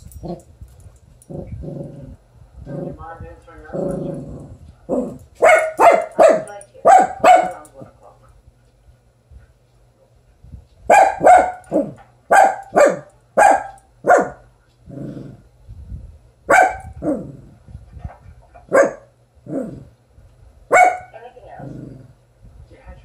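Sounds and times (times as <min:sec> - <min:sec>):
small dog barking: 0:05.4 - 0:07.7, 0:10.9 - 0:14.5, 0:16.5 - 0:17.2, 0:18.6 - 0:19.1, 0:20.7 - 0:21.2.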